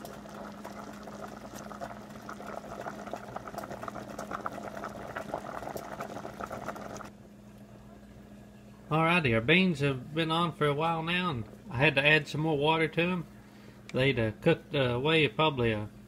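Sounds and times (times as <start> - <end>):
beans boiling and bubbling: 0.0 - 7.2
steady low hum: 0.0 - 16.0.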